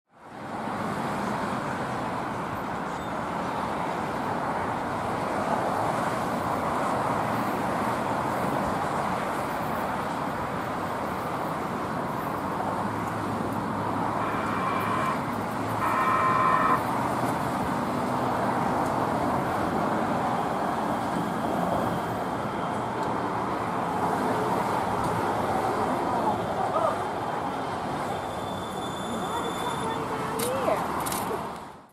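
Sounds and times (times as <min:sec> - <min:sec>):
traffic noise: 0:00.1 - 0:31.9
light-rail car rolling in: 0:00.3 - 0:31.4
train horn blasts: 0:14.0 - 0:17.0.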